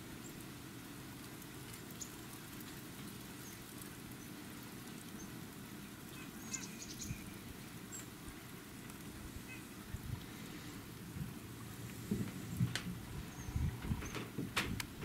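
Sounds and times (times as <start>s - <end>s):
low outdoor rumble: 0.0s - 15.0s
bird chips: 1.2s - 5.4s, 6.0s - 8.1s.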